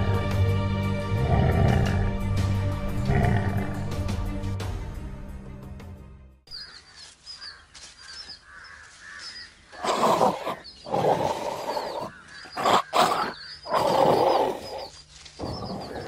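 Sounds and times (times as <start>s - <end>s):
lion growling: 1.1s - 2.2s, 2.9s - 4.0s, 9.8s - 16.0s.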